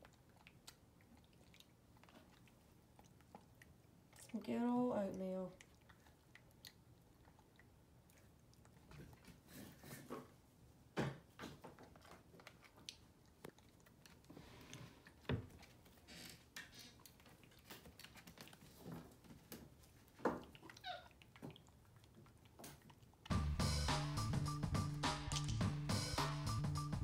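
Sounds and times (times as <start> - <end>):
loud music: 23.3 - 27.0.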